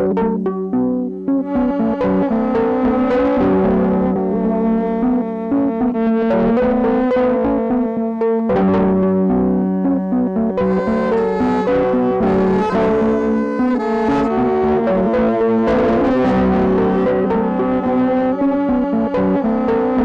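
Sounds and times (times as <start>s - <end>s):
instrumental background music: 0.0s - 20.0s.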